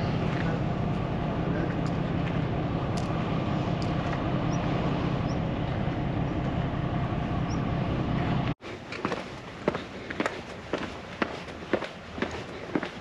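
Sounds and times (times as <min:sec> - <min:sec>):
footsteps on stone steps: 0:08.6 - 0:13.0.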